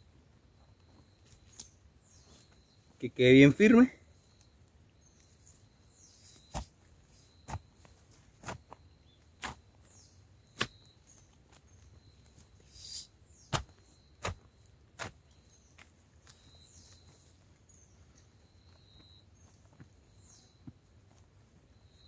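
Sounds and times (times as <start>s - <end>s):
insects whining: 0.0s - 22.0s
feet thudding on soil: 6.1s - 8.8s, 9.4s - 9.6s, 13.4s - 15.2s.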